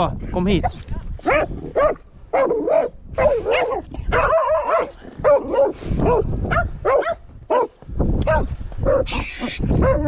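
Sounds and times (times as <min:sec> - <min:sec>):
dogs barking: 0:00.6 - 0:09.1.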